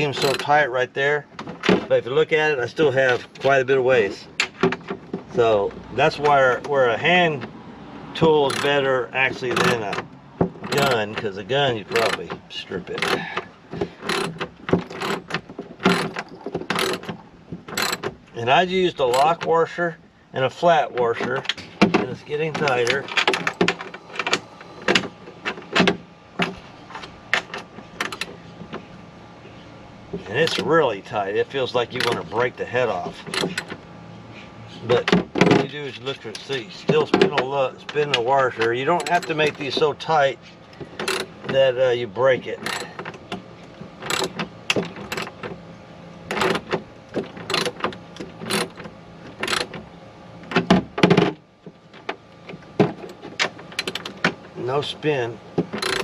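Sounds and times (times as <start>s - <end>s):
hand tool tightening bolt clicks: 8.4s - 8.8s, 10.6s - 11.2s, 33.2s - 33.7s, 38.0s - 39.7s, 41.0s - 41.3s, 42.6s - 43.2s, 44.0s - 45.4s, 47.5s - 48.8s, 49.4s - 49.8s, 55.8s - 56.0s
washer clicks and scrapes: 9.4s - 11.3s, 31.8s - 33.8s, 55.6s - 56.0s.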